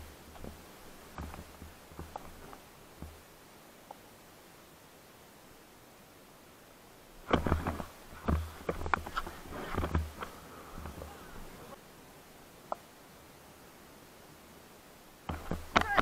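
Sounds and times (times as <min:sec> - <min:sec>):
camera handling knocks and rubs: 0:07.3 - 0:11.0, 0:15.3 - 0:16.0.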